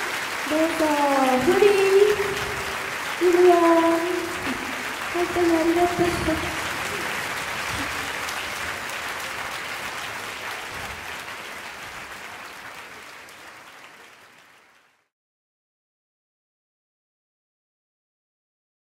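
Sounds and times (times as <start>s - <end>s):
audience applauding: 0.0s - 15.1s.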